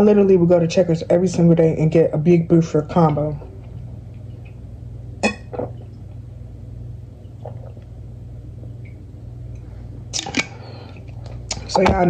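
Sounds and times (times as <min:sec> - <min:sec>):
low hum: 0:00.0 - 0:12.0
person swallowing: 0:05.2 - 0:06.0, 0:07.3 - 0:07.9.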